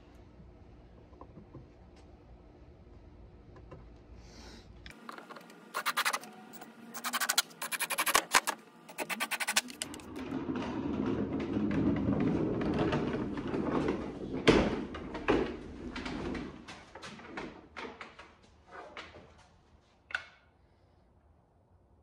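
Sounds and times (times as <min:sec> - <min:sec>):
dolly casters rumbling: 0:09.6 - 0:17.3.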